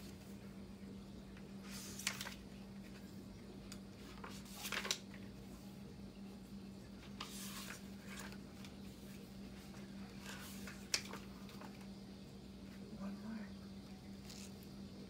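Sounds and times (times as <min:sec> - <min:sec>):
book pages turning: 0:01.4 - 0:05.4, 0:07.0 - 0:11.9, 0:14.2 - 0:14.7.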